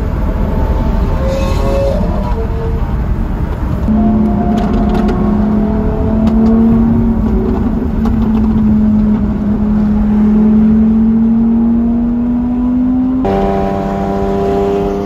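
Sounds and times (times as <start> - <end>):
car engine drone: 0.0 - 15.0
road and wind noise: 0.0 - 15.0.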